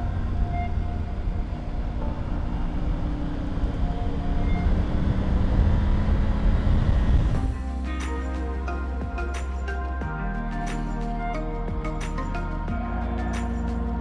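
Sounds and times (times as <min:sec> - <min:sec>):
wind rumble on microphone: 0:00.0 - 0:07.6.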